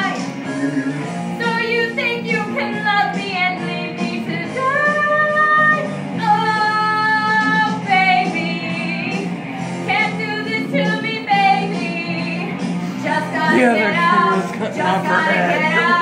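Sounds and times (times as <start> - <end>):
backing track music: 0.0 - 16.0
person singing into microphone: 13.1 - 16.0.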